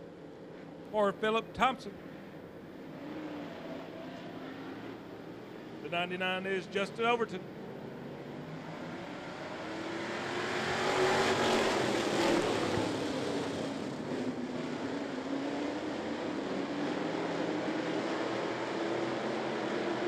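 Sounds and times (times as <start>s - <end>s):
race car engines at speed: 0.0s - 20.0s.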